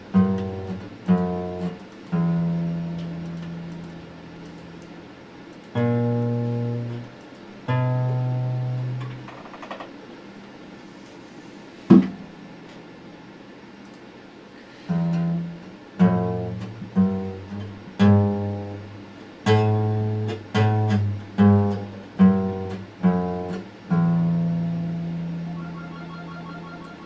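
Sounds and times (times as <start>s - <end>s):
acoustic guitar plucked slowly: 0.0s - 4.4s, 5.8s - 7.1s, 7.7s - 9.3s, 14.8s - 27.0s.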